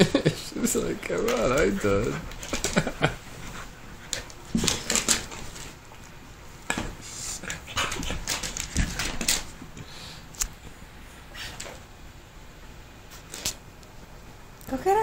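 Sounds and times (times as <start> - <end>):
dogs scuffling on hardwood floor: 0.1 - 9.8.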